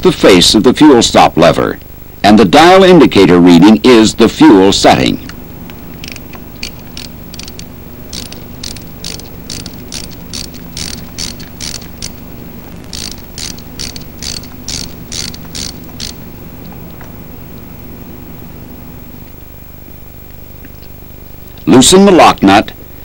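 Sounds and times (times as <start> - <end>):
steady low hum: 0.0 - 23.0
ratchet-like clicks: 5.9 - 12.2, 12.8 - 16.2.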